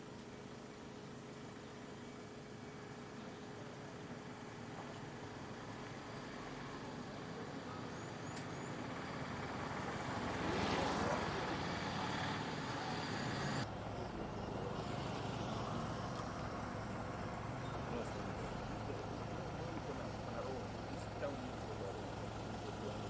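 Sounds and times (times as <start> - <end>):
road noise: 0.0 - 23.0
motor vehicle passing: 5.1 - 23.0.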